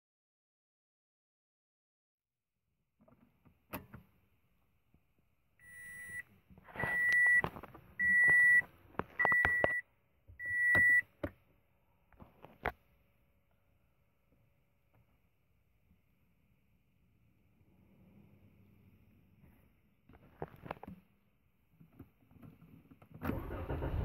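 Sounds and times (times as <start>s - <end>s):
car dashboard warning chime: 6.8s - 7.4s, 8.0s - 8.6s, 9.2s - 9.8s, 10.4s - 11.0s.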